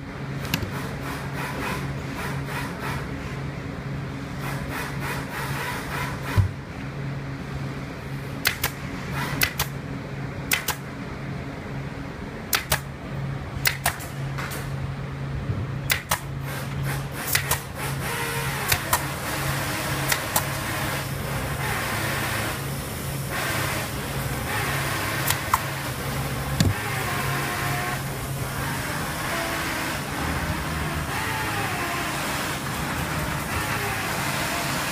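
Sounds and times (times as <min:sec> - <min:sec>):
low machinery hum: 0:00.0 - 0:34.9
staple gun snaps: 0:08.4 - 0:08.8, 0:09.4 - 0:09.7, 0:10.5 - 0:10.8, 0:12.5 - 0:12.9, 0:13.6 - 0:14.1, 0:15.9 - 0:16.3, 0:17.3 - 0:17.6.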